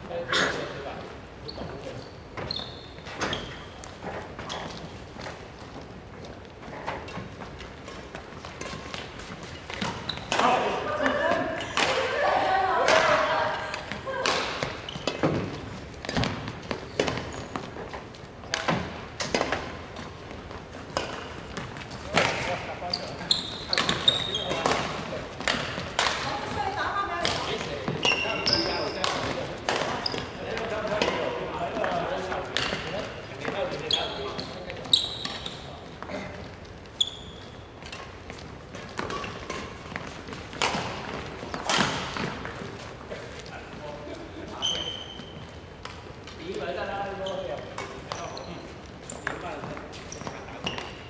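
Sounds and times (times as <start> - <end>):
sports hall noise: 0.0 - 51.0
sneaker squeak: 1.4 - 5.5, 6.7 - 11.8, 14.6 - 31.4, 32.1 - 43.3, 44.4 - 45.7, 46.7 - 51.0
rackets smacking shuttlecock: 9.7 - 12.2, 23.7 - 26.6, 27.2 - 33.0, 37.8 - 42.7
racket striking shuttlecock: 38.7 - 42.6.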